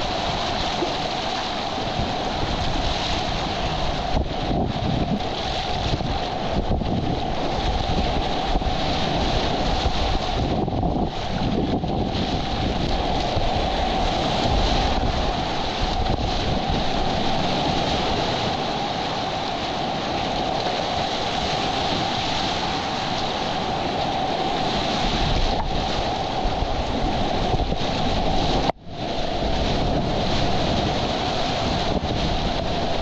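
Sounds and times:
whitewater rapids rushing: 0.0s - 33.0s
wind buffeting microphone: 0.0s - 33.0s.

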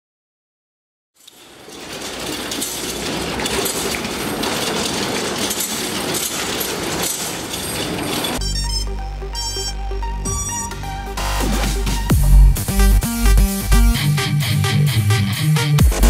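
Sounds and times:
chain clinking: 1.2s - 8.4s
metal door slats rattling: 1.2s - 8.4s
electronic music with heavy beat: 8.6s - 16.0s.

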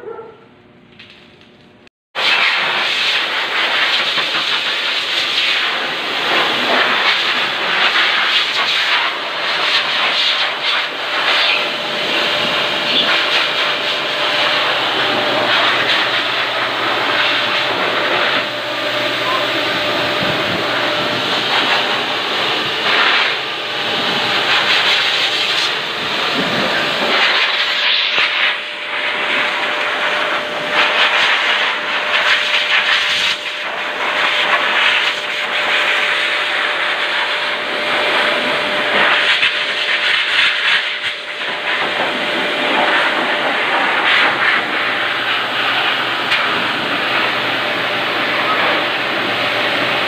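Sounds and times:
blower air rushing: 2.2s - 50.0s
motor whine: 10.9s - 27.4s, 41.2s - 50.0s.

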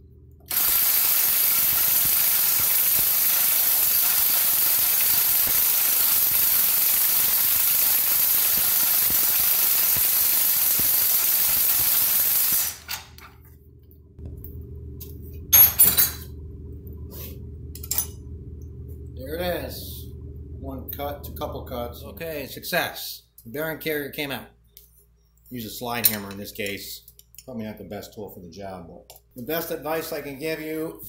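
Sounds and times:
gas torch hissing: 0.5s - 13.2s.

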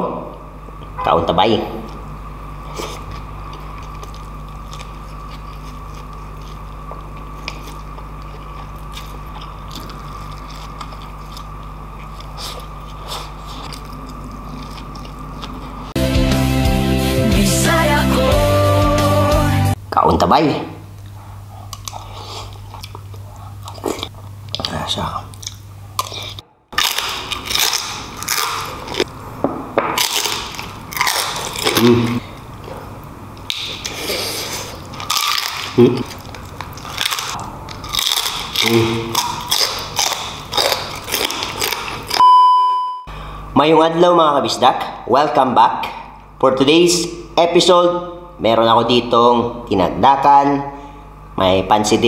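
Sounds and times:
steady low hum: 0.0s - 52.0s
person chewing food: 1.8s - 16.0s, 21.0s - 29.2s, 29.9s - 42.3s.

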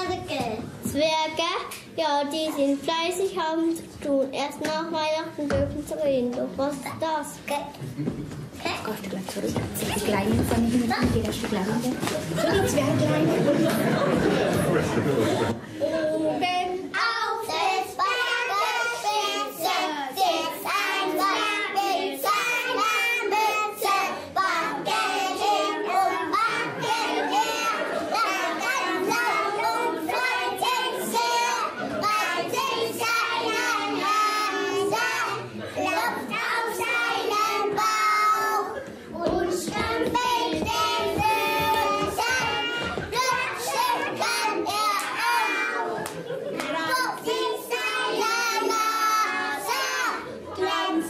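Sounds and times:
children singing together: 12.3s - 51.0s.

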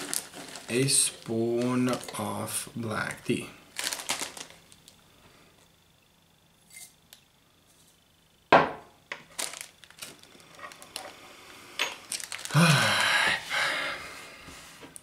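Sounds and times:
plastic bag crinkling: 0.0s - 2.5s, 3.7s - 5.0s, 9.2s - 11.2s, 11.8s - 12.9s
glass knock: 8.5s - 8.9s.

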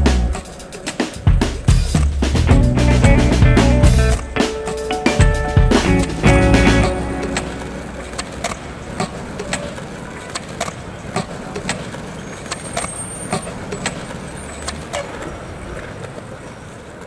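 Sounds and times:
skateboard wheels rolling: 0.0s - 17.0s.

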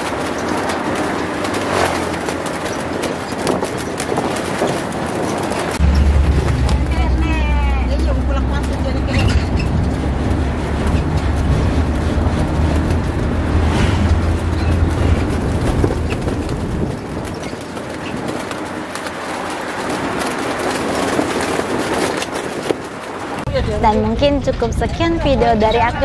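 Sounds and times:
road noise: 0.0s - 26.0s
wind buffeting microphone: 0.0s - 26.0s
deep rumble: 5.7s - 18.5s.

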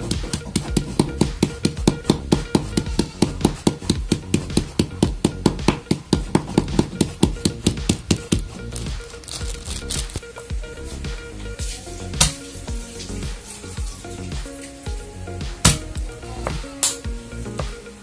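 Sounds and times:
stick crushing shrimp in plastic bag: 7.5s - 10.2s.

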